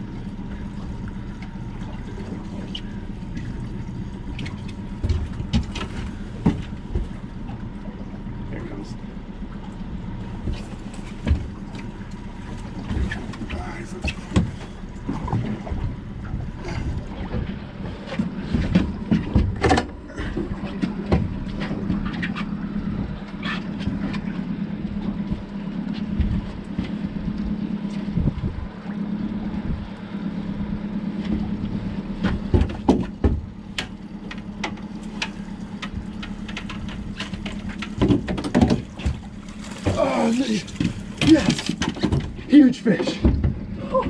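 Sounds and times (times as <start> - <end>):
outboard motor humming: 0.0 - 44.0
knocks on aluminium boat: 32.2 - 34.0, 35.8 - 40.0.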